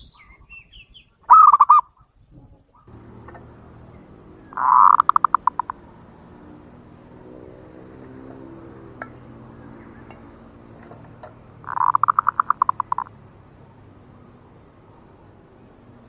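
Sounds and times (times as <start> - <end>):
dove calling staccato notes: 1.3 - 1.9, 2.9 - 16.0
low steady hum: 2.8 - 16.0.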